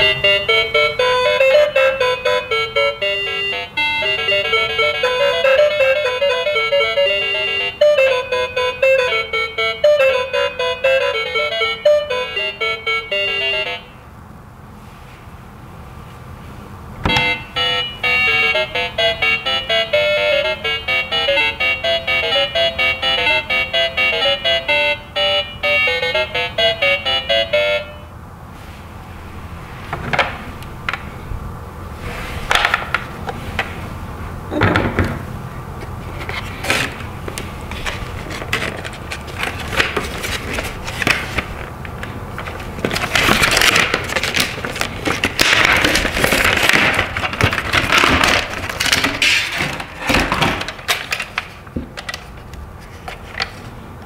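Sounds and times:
plastic packaging crackling: 36.4s - 53.6s.

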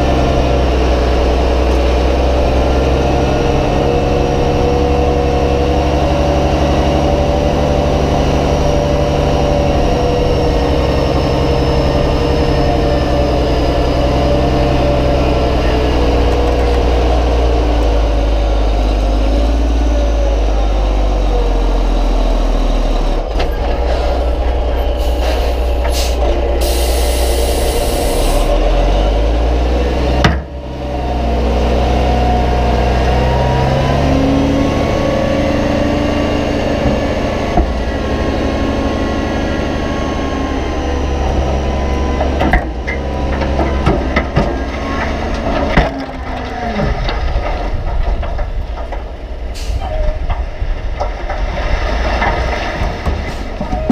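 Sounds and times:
dump truck diesel engine: 0.0s - 53.9s
air hiss: 25.0s - 28.5s.

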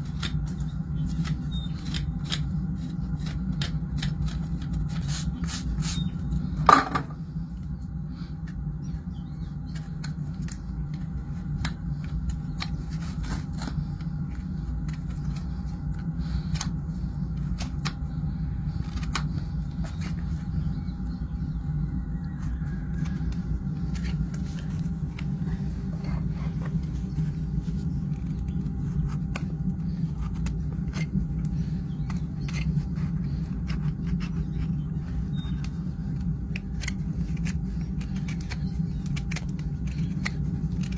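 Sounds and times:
knife scraping hoof: 0.0s - 7.0s
steady low hum: 0.0s - 40.9s.

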